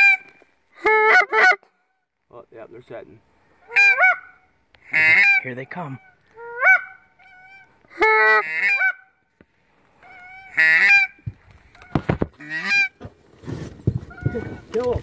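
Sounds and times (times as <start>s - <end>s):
goose honking: 0.0s - 1.7s, 3.6s - 9.2s, 10.0s - 11.2s, 11.8s - 13.0s, 14.1s - 14.8s
rustling: 11.2s - 15.0s.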